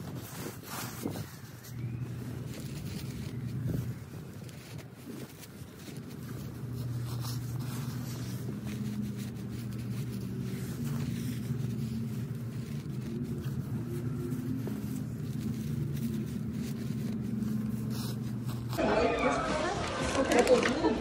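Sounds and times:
low motor hum: 0.0s - 18.8s.

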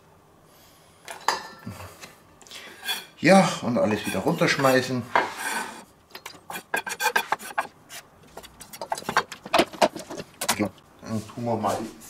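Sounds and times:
scraping on wooden cutting board: 3.9s - 10.3s.

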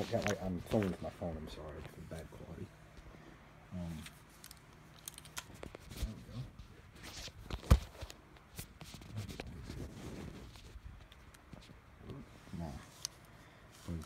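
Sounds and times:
handling rustling: 0.0s - 2.4s.

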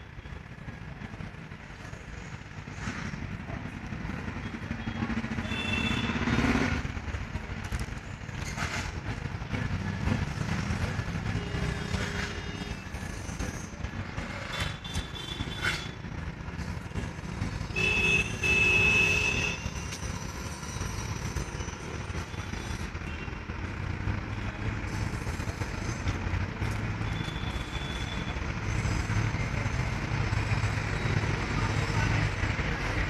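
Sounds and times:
rumble of passing vehicles: 0.0s - 33.0s
vehicle horn honking: 17.8s - 19.6s.

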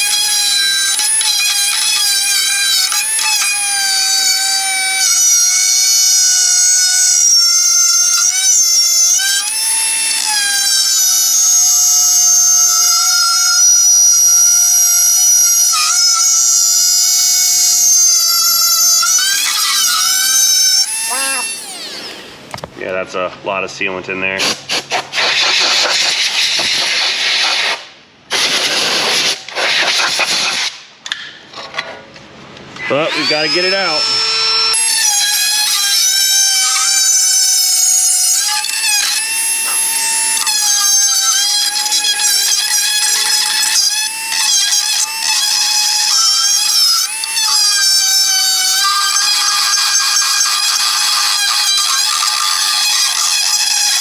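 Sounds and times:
rotary tool grinding: 0.0s - 22.4s, 32.8s - 54.0s
rough grinding: 34.7s - 54.0s.

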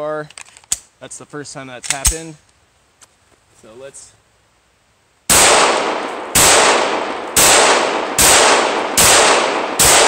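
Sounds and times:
pistol shots echoing: 5.3s - 10.0s.

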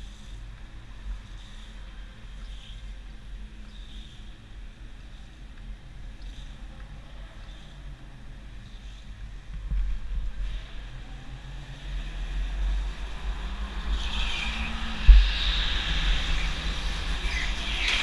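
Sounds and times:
go-kart rumble: 9.6s - 18.0s
wind buffeting microphone: 12.2s - 17.7s.

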